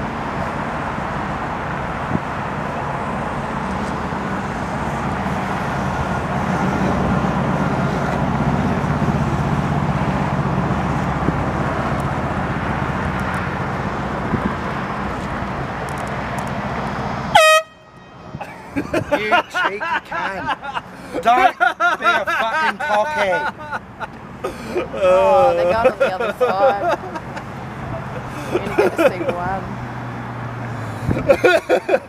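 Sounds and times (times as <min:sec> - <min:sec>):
steam locomotives rumbling: 0:02.6 - 0:15.9.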